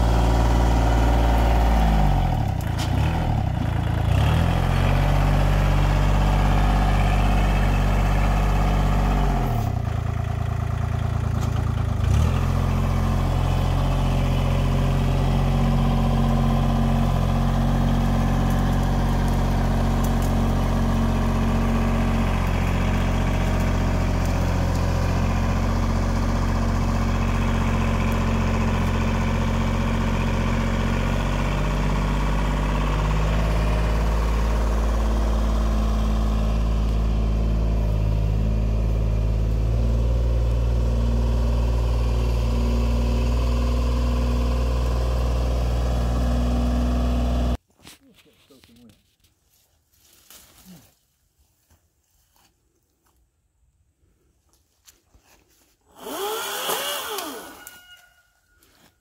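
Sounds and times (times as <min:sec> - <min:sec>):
front loader pushing into brush: 0:00.0 - 0:47.6
tractor diesel engine running: 0:00.0 - 0:47.6.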